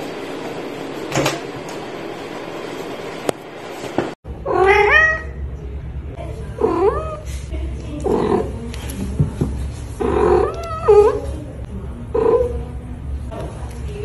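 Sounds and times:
cat meowing: 0:04.4 - 0:05.4, 0:10.0 - 0:11.2.

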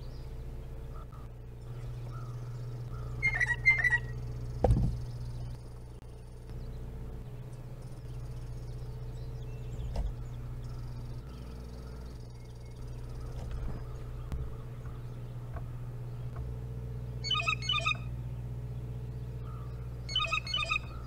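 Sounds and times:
faint high chirring: 0:00.0 - 0:21.0
low steady hum: 0:00.0 - 0:21.0
dull thump: 0:04.6 - 0:05.0, 0:09.8 - 0:10.2.

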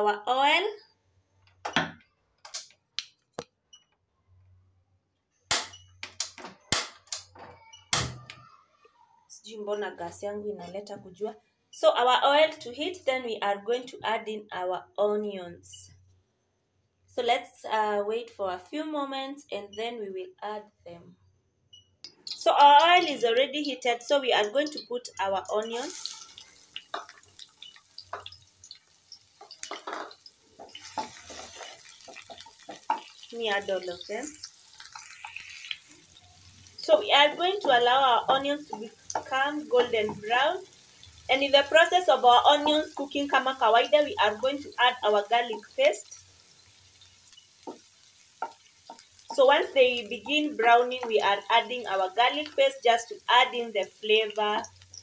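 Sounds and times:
oil spitting in a frying pan: 0:22.1 - 0:55.0.

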